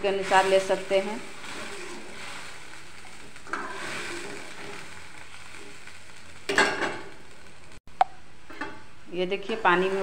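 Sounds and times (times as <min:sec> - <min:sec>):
steel ladle scraping a pan: 0:00.1 - 0:02.6, 0:03.4 - 0:05.0, 0:09.4 - 0:10.0.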